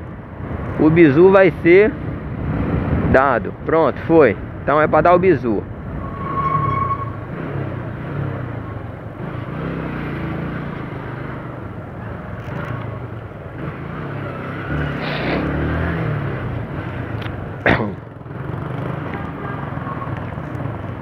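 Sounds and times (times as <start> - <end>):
traffic noise: 0.0 - 21.0
wind: 0.0 - 21.0.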